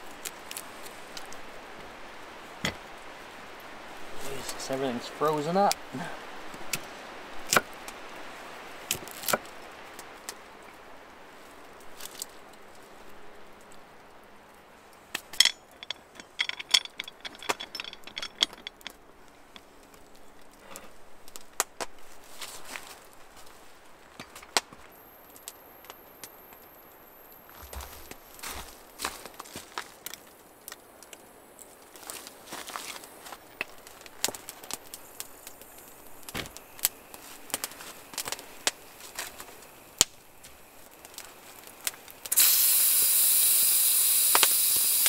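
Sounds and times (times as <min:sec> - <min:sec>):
light clinks and taps: 0:15.4 - 0:19.0.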